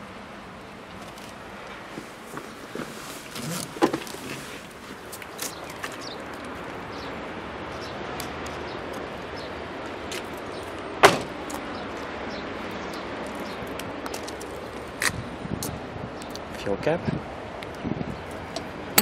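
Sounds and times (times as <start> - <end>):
outdoor background noise: 0.0 - 19.0
car door shutting: 2.3 - 4.4, 11.0 - 11.3.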